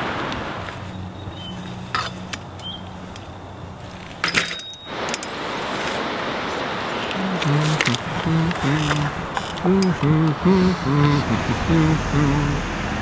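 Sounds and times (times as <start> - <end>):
rattle of metal clinks: 4.2 - 5.4.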